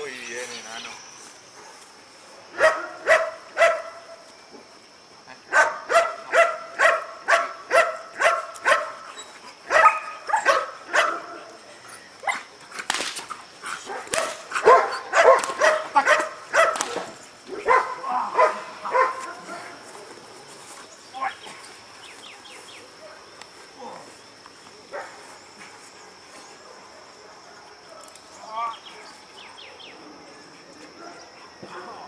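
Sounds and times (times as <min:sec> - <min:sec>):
large dog barking: 0:02.6 - 0:04.1, 0:05.5 - 0:11.6, 0:13.8 - 0:19.8.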